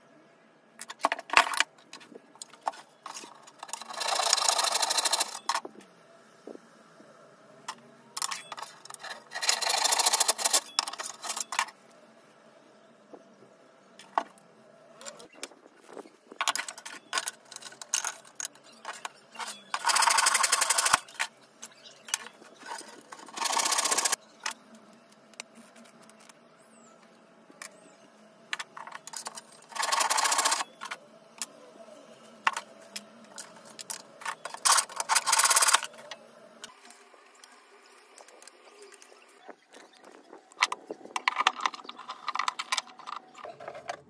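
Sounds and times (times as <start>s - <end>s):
wooden blocks and metal nuts clicking: 0.8s - 5.7s, 7.7s - 11.8s, 16.3s - 26.4s, 28.5s - 31.6s, 32.4s - 44.0s.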